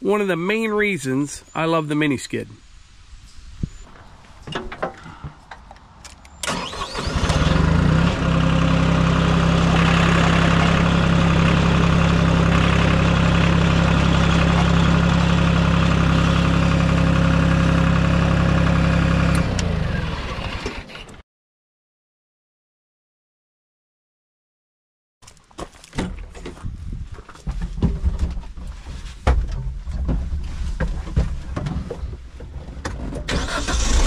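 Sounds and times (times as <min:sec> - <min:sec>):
engine cranking and running: 0:06.4 - 0:21.2, 0:33.3 - 0:34.0.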